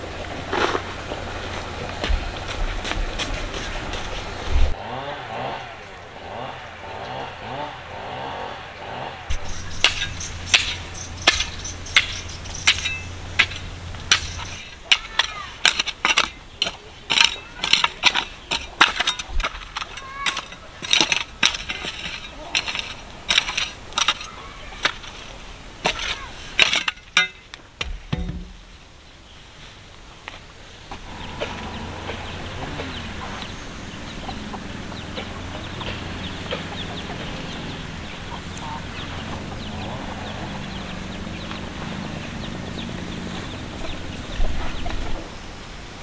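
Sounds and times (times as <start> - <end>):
hoe chopping stony soil: 8.9 - 28.7.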